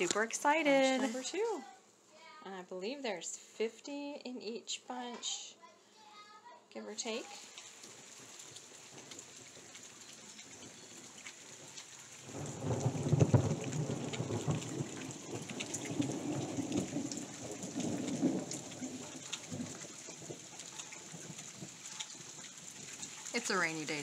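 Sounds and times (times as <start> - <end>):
rain pattering: 0.0 - 1.8, 6.9 - 24.0
thunder rolling: 12.2 - 22.3.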